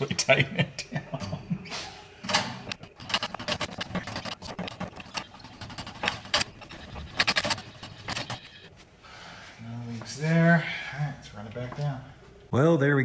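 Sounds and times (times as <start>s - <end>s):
hand pump metallic clanks and rattles: 2.3s - 8.7s.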